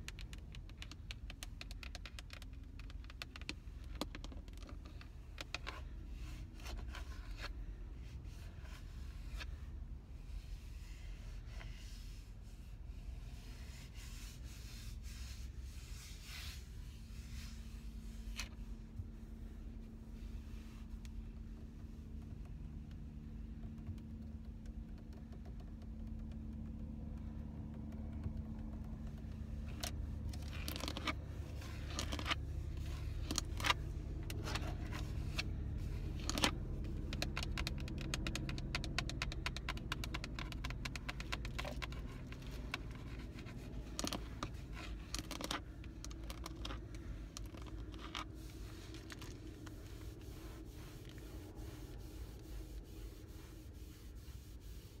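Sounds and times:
fingernails tapping and scratching: 0:00.0 - 0:06.0, 0:21.0 - 0:55.0
low steady hum: 0:00.0 - 0:55.0.

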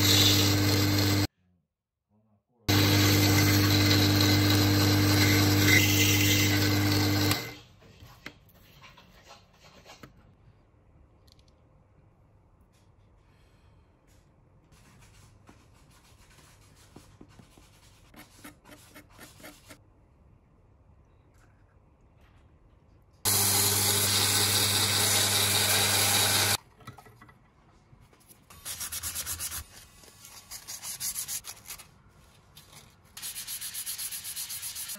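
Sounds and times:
power tool motor running: 0:00.0 - 0:01.3, 0:02.7 - 0:07.6, 0:23.3 - 0:26.6.

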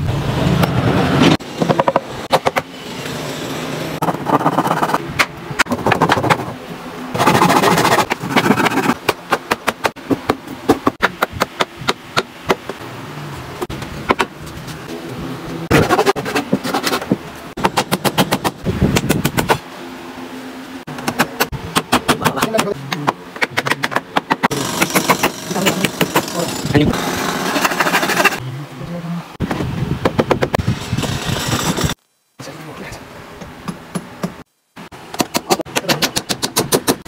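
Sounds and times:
hammer driving nails into wood: 0:23.4 - 0:26.3.

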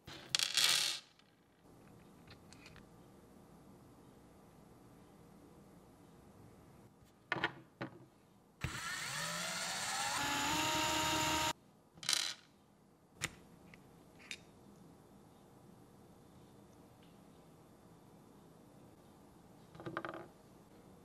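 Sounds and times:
electric screwdriver whining: 0:08.6 - 0:11.5.

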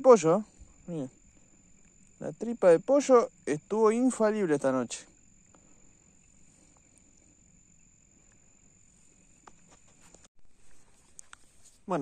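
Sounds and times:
high-pitched cricket trill: 0:00.0 - 0:12.0.

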